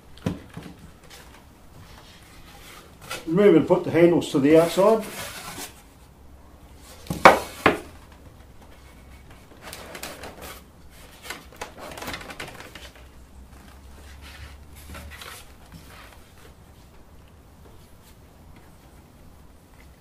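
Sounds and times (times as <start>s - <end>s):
panels scraping and rubbing: 0.9s - 6.0s, 6.7s - 16.9s
wooden panels knocking: 7.1s - 8.0s.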